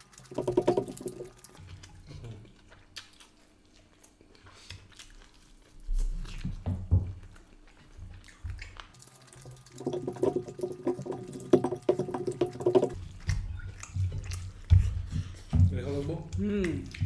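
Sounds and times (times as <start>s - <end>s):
chewing: 0.0s - 17.0s
fingers squelching food on a plate: 7.6s - 17.0s.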